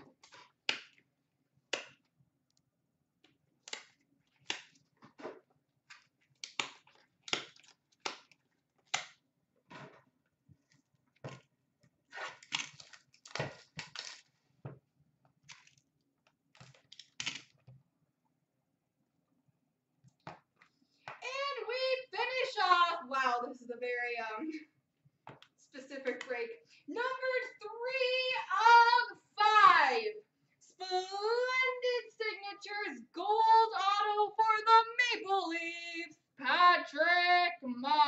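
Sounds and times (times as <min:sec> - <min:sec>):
packaging crinkling and tearing: 0:12.3 - 0:14.4.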